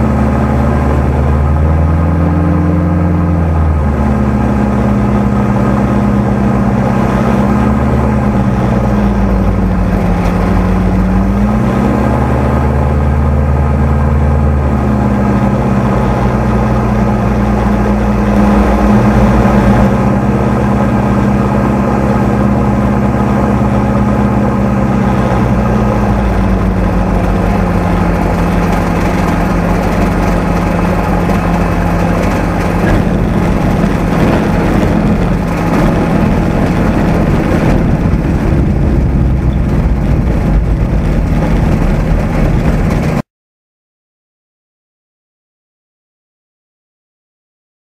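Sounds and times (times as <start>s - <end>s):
microlight engine and propeller: 0.0s - 43.2s.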